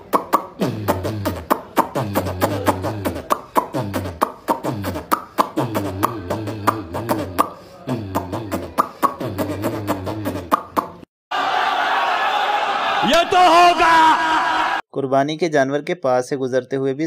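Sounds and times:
beatbox vocal sounds: 0.0s - 11.1s
steady clicking beat: 0.0s - 11.1s.

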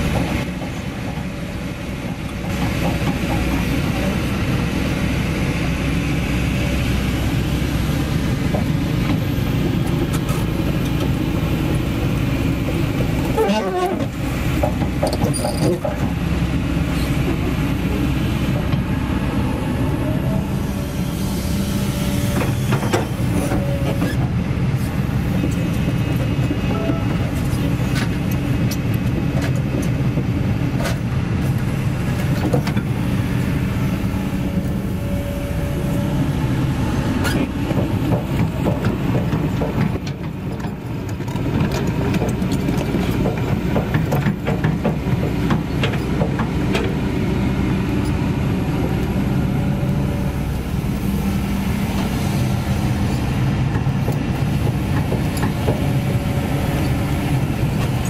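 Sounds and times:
excavator diesel engine running: 0.0s - 58.0s
metallic clanks and squeaks of tracks: 0.1s - 4.5s, 12.6s - 16.2s, 16.8s - 17.5s, 20.0s - 33.2s, 37.1s - 47.1s, 47.8s - 58.0s.

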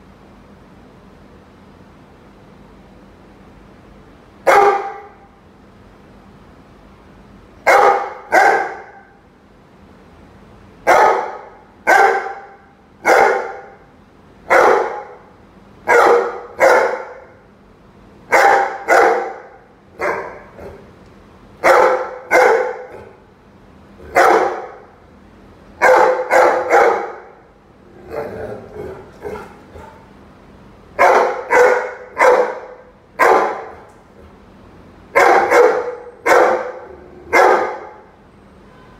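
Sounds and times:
dog barking: 4.5s - 5.3s, 7.6s - 9.2s, 10.8s - 13.9s, 14.5s - 17.4s, 18.3s - 20.9s, 21.6s - 23.2s, 24.0s - 24.9s, 25.8s - 27.4s, 28.1s - 30.1s, 31.0s - 33.9s, 35.1s - 38.1s.

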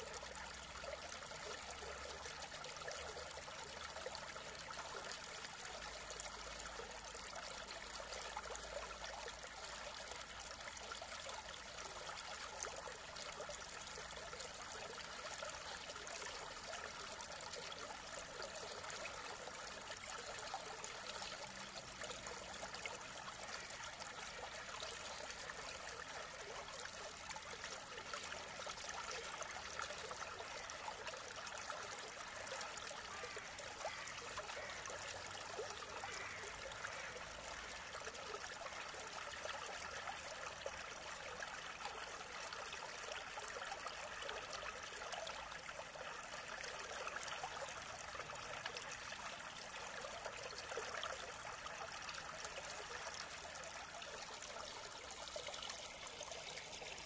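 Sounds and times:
stream water rushing: 12.9s - 57.0s.

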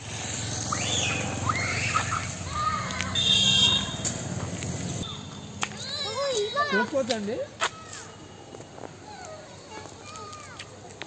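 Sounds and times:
child squealing: 0.7s - 3.2s
young children calling out: 0.9s - 3.8s, 5.0s - 7.0s.

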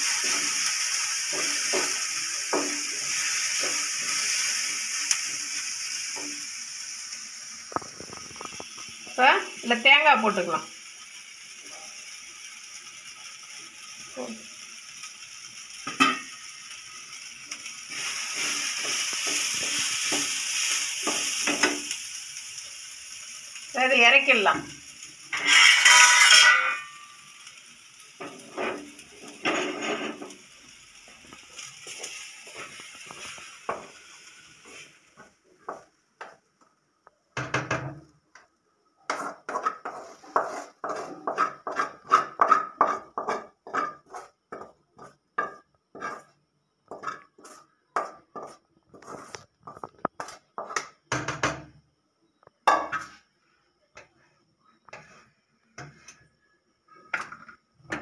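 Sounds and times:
sizzling in a steel pan: 0.0s - 58.0s
wooden spatula knocking steel pot: 25.4s - 26.9s, 40.4s - 44.7s.

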